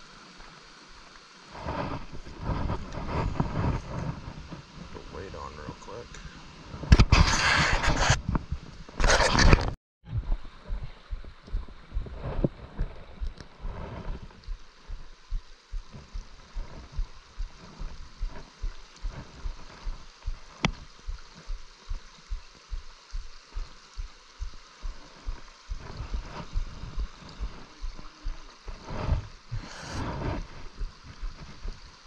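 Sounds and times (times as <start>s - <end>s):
stream water running: 0.0s - 32.0s
regular low thumping: 10.1s - 32.0s.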